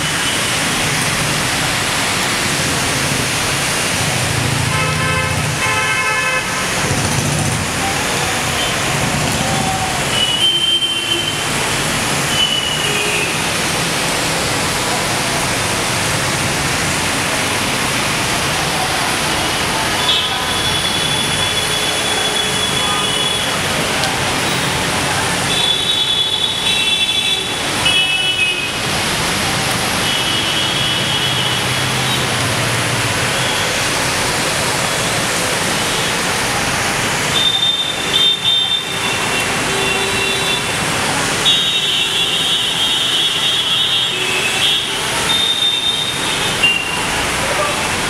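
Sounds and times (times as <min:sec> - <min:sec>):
rain hiss: 0:00.0 - 0:48.0
traffic on wet street: 0:00.0 - 0:48.0
vehicle horns honking: 0:04.7 - 0:06.9, 0:10.1 - 0:11.5, 0:20.0 - 0:23.6, 0:37.4 - 0:40.8.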